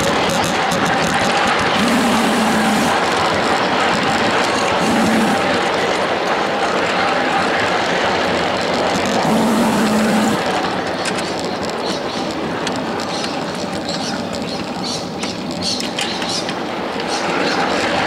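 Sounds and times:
wheels clicking over rail joints: 0.0s - 18.0s
train wheels rattling: 1.2s - 3.6s
steam whistle tone with hiss: 1.8s - 3.0s, 4.8s - 5.5s, 9.2s - 10.4s.

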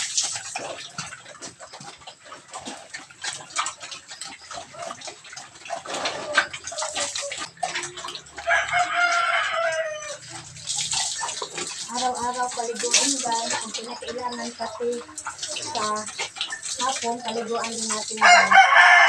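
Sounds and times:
water splashing and pattering: 0.0s - 19.0s
rooster crowing: 8.4s - 10.3s, 18.2s - 19.0s.

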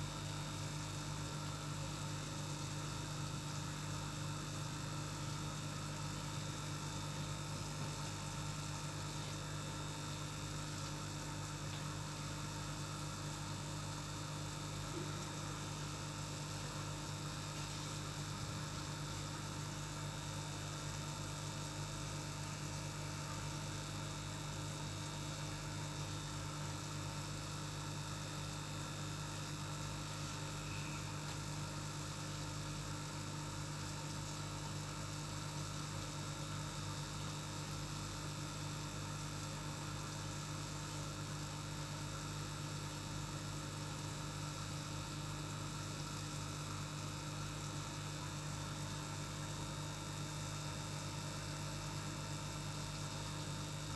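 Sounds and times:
air pump humming: 29.3s - 37.4s.

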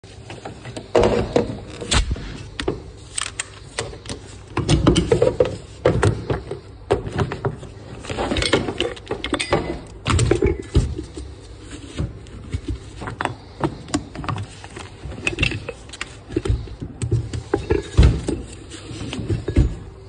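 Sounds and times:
metal tools clattering: 8.0s - 10.6s.

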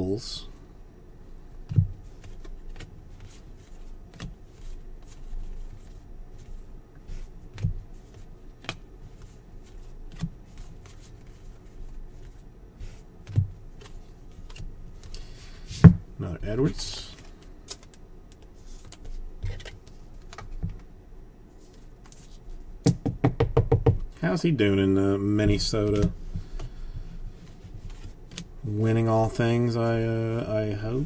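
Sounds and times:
cards sliding on cards: 2.0s - 15.9s
dull knocks: 22.9s - 24.1s.

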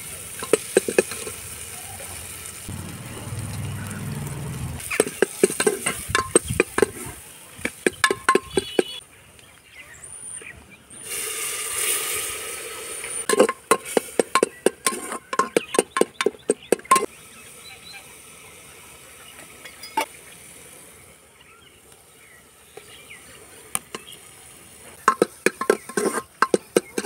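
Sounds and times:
masala sizzling: 0.0s - 9.0s, 10.4s - 27.0s
ladle clinking against pot: 5.0s - 7.0s, 7.9s - 8.9s, 13.3s - 17.1s, 25.1s - 27.0s.

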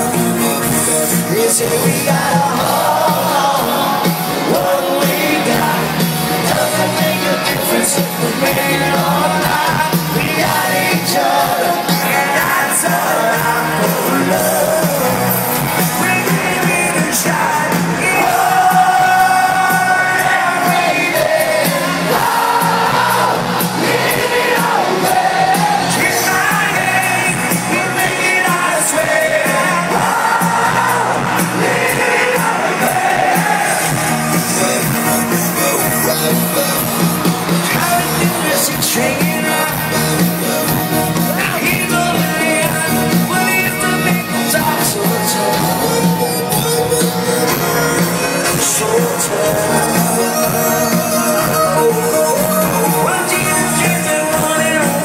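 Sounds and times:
crowd shouts and whoops: 0.0s - 55.0s
lead vocalist singing: 0.0s - 55.0s
live rock band playing: 0.0s - 55.0s.

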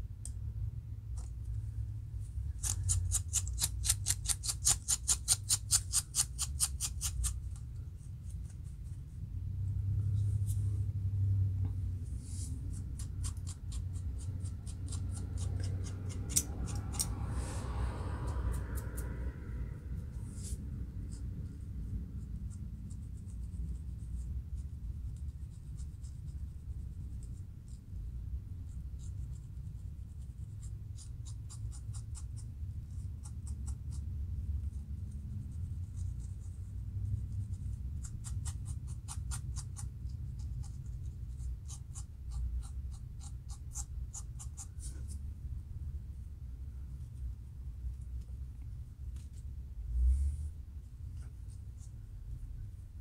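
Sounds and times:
steady low rumble: 0.0s - 4.5s, 6.4s - 31.0s
fingernails and comb scratching scalp: 2.6s - 7.6s.

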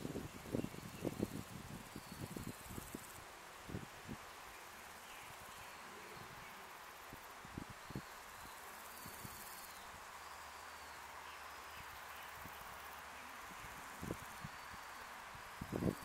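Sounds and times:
insects buzzing and trilling: 0.0s - 16.0s.

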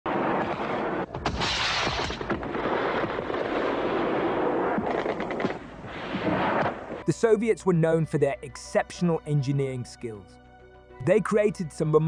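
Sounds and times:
sharp blasts: 0.1s - 7.1s.

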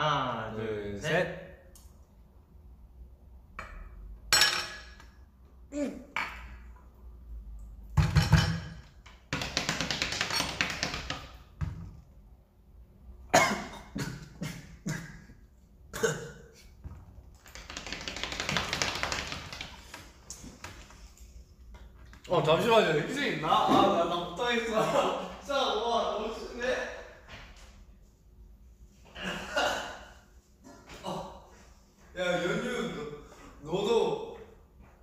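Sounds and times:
people coughing: 13.3s - 15.3s, 15.9s - 16.6s, 29.2s - 30.8s.

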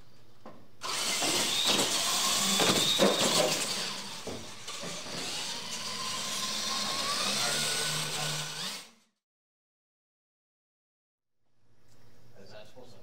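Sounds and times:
electric motors whining: 0.8s - 9.2s.

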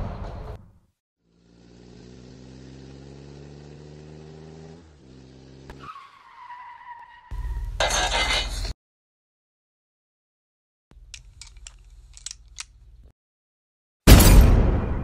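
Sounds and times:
engine running with rising pitch: 1.2s - 5.8s
high tire squeal: 5.6s - 8.6s.

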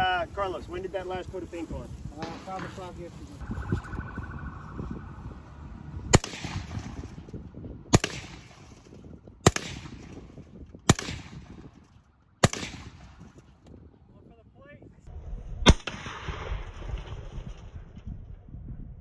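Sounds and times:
rifle shots with echo: 6.1s - 7.2s, 7.9s - 8.8s, 9.4s - 11.7s, 12.4s - 13.4s, 15.6s - 16.8s.

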